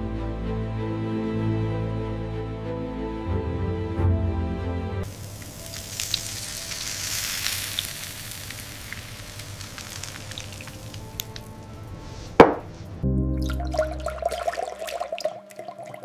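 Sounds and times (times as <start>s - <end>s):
food sizzling on a grill: 5.0s - 11.7s.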